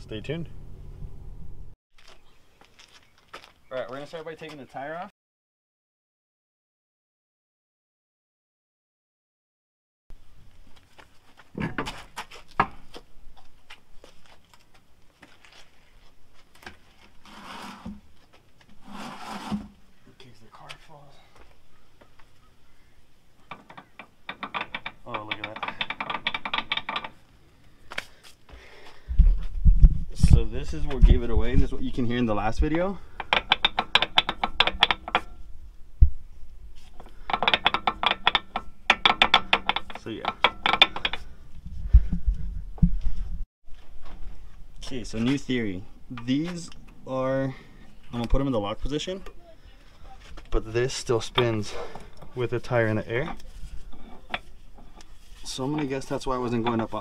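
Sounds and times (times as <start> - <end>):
scraping rustle: 14.0 - 19.8, 49.8 - 57.0
knocks and clicks from wheel: 23.5 - 27.2, 33.2 - 35.3, 37.0 - 41.3.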